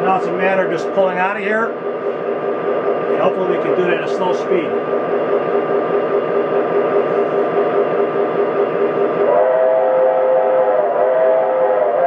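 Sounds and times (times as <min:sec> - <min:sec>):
pulsed tone: 0:00.0 - 0:12.0
steam rumble and hiss: 0:00.0 - 0:12.0
multi-note steam whistle: 0:09.0 - 0:12.0.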